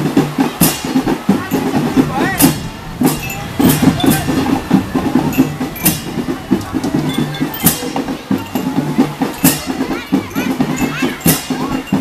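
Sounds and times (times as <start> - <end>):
marching drum band: 0.0 - 12.0
cymbal crash: 0.6 - 9.9.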